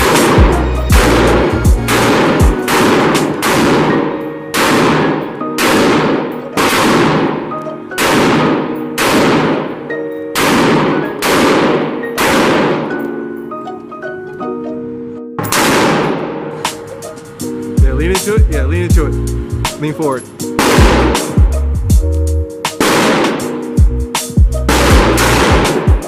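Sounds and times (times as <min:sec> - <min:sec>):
rifle single shots echoing: 0:00.0 - 0:13.1, 0:15.4 - 0:16.6, 0:20.6 - 0:21.4, 0:22.8 - 0:23.7, 0:24.7 - 0:26.0.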